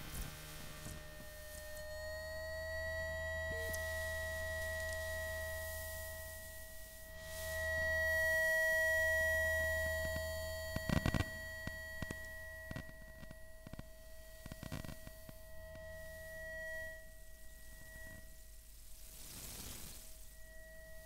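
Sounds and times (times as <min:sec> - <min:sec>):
electronic whine of pure tones: 0:00.0 - 0:21.0
low electrical hum: 0:00.0 - 0:21.0
scattered crackles: 0:10.7 - 0:15.8, 0:19.0 - 0:20.1.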